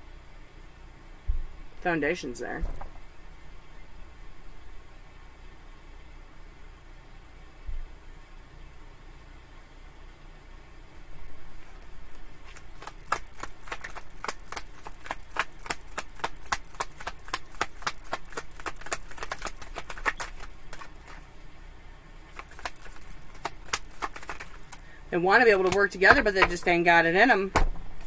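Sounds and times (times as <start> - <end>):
cards being shuffled: 11.8 - 21.3, 22.2 - 27.4.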